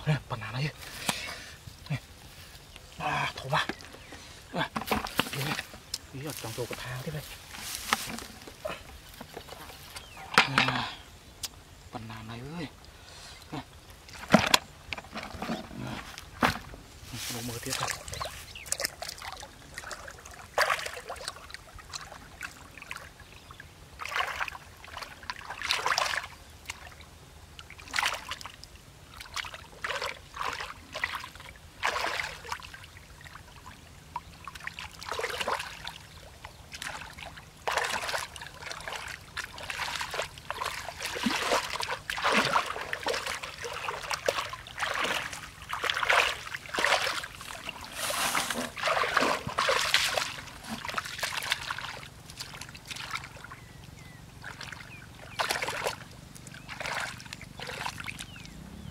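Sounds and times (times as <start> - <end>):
splashing through muddy water: 2.9 - 11.0, 13.5 - 58.9.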